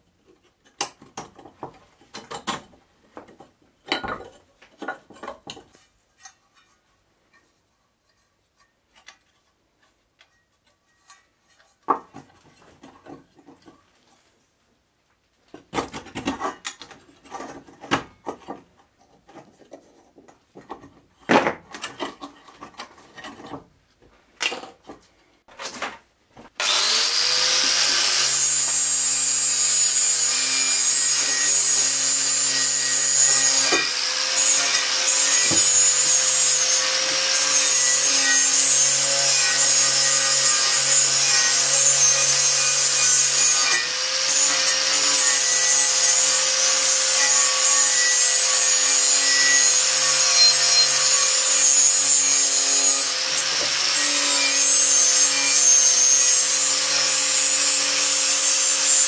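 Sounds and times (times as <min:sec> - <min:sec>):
angle grinder motor whine: 0:26.6 - 0:28.7.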